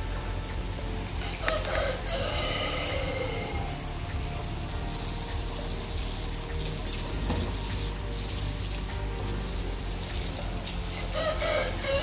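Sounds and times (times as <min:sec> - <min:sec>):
background music: 0:00.0 - 0:12.0
rooster crowing: 0:01.2 - 0:03.7, 0:11.1 - 0:12.0.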